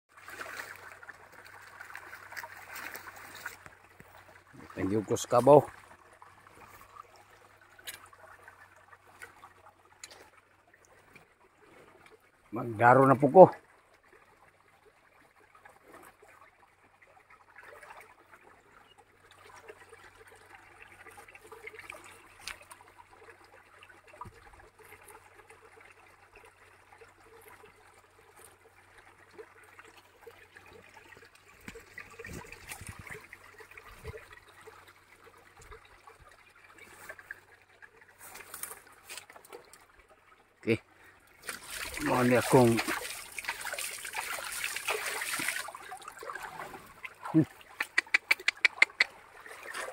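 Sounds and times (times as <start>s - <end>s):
faint stream trickling: 0.1s - 49.9s
short clicks: 47.7s - 49.1s.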